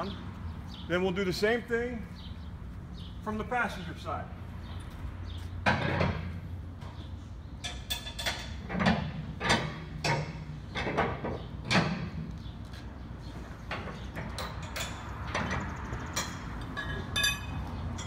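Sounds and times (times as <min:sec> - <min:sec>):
winch bar clanking and clicking: 0:07.6 - 0:12.2.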